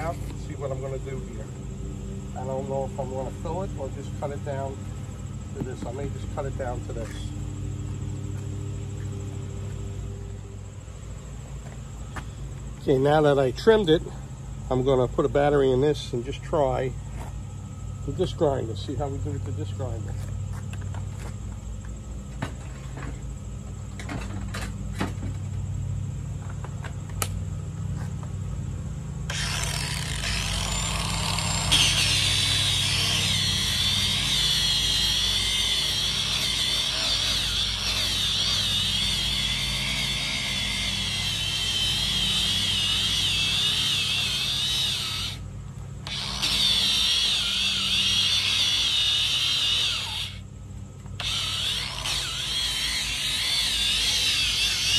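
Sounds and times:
disc grinder sanding foam: 29.3s - 45.4s, 46.0s - 50.4s, 51.2s - 54.9s.

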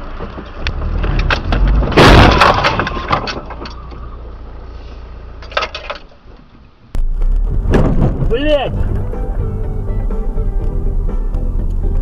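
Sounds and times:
car crash impact: 0.2s - 3.9s, 7.0s - 9.1s
clatter of breaking parts: 0.2s - 4.0s, 5.4s - 6.2s.

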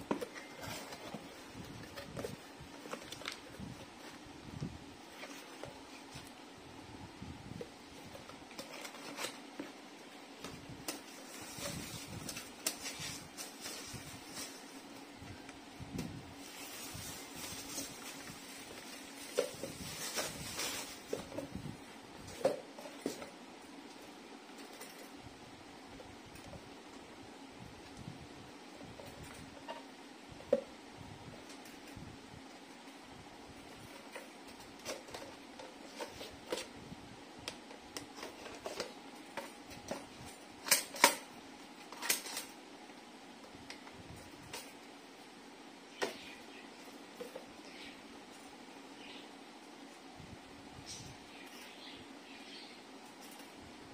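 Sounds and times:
plastic bag rustling and crinkling: 10.5s - 15.2s, 16.4s - 23.3s.

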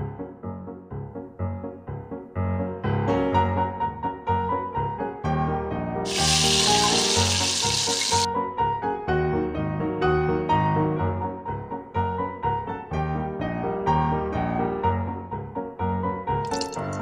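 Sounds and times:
piano music: 3.4s - 17.0s
hot oil sizzling: 6.1s - 8.3s.

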